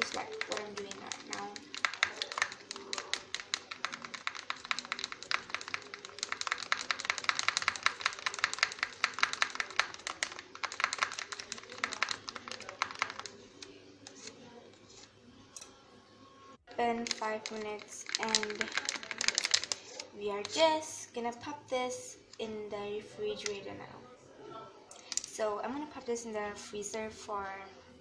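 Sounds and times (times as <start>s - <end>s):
stick clicking against bowl: 0.0s - 13.4s
wooden stick stirring thick mixture: 0.0s - 14.3s, 17.0s - 19.8s.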